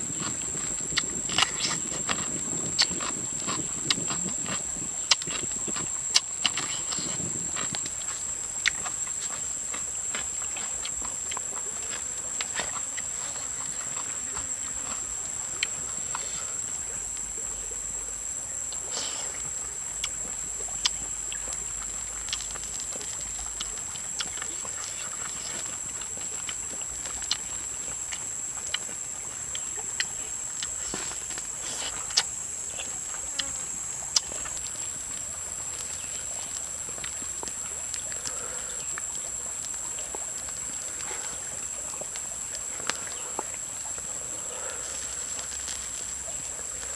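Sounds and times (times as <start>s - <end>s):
insects droning: 0.0s - 46.9s.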